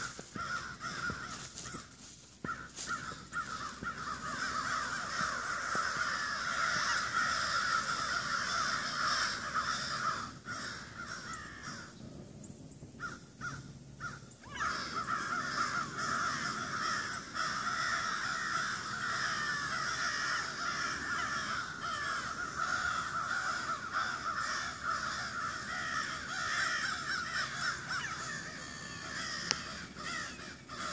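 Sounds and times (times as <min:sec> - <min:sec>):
crows cawing: 0:00.0 - 0:12.0, 0:13.0 - 0:30.9.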